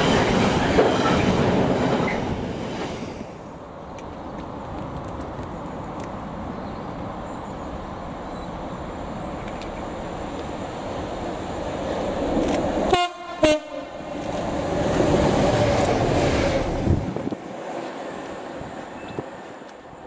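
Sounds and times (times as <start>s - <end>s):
train horn blasts: 12.9s - 14.0s
train wheels rushing past: 14.0s - 19.9s.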